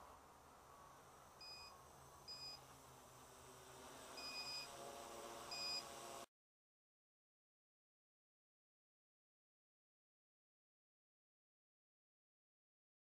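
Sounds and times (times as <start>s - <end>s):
short high beeps: 4.2s - 4.7s, 5.5s - 5.8s.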